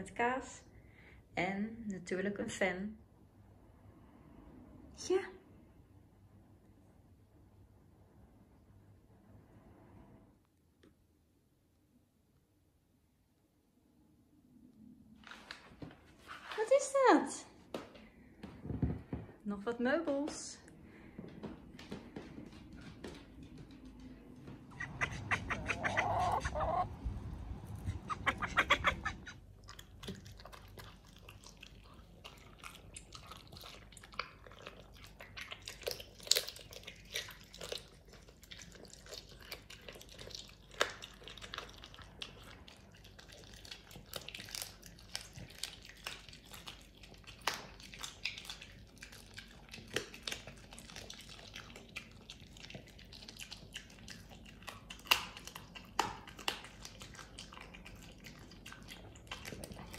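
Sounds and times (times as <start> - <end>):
dog chewing and gnawing: 22.4 - 59.9
poultry clucking: 24.5 - 29.4.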